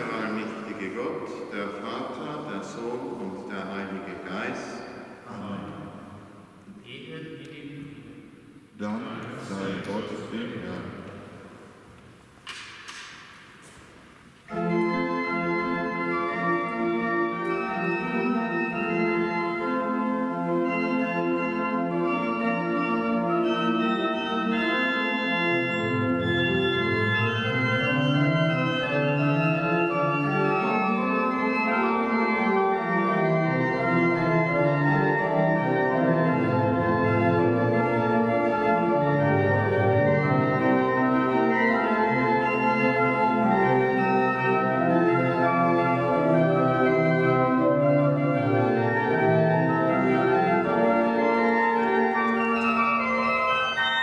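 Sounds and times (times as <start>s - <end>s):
pipe organ chords: 0.0s - 13.5s, 14.2s - 54.0s
deep organ bass line: 23.4s - 51.4s.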